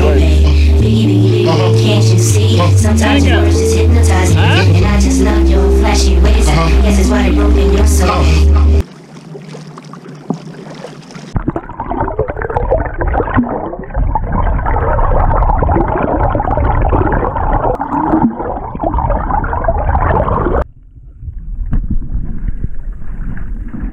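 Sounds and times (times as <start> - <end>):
water above surface: 0.0 - 23.9
muffled underwater rushing water: 5.0 - 23.9
wind noise: 18.9 - 23.9.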